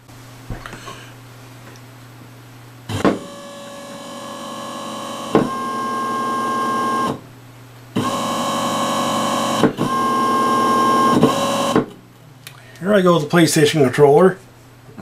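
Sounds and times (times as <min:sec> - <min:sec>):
electric motor whining: 0:08.0 - 0:11.8.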